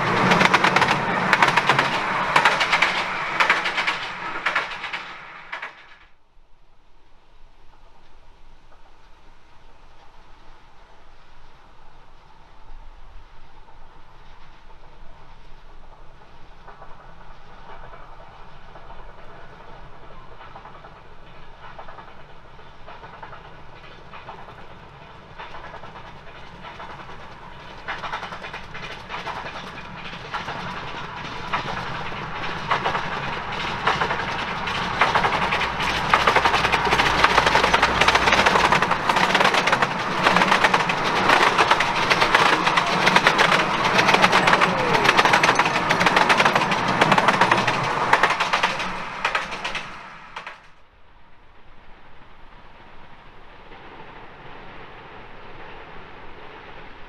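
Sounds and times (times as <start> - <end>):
wheels clattering over rail joints: 0.0 - 6.1, 21.6 - 50.7
miniature steam train passing: 0.0 - 6.3, 6.9 - 57.0.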